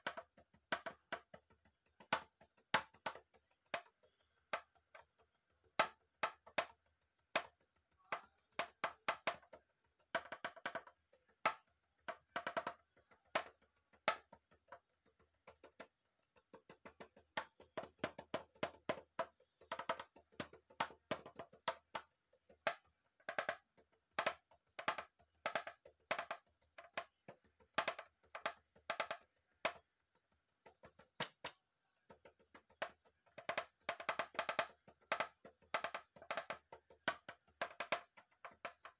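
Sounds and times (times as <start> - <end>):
plastic container drum struck with sticks: 30.6 - 38.9.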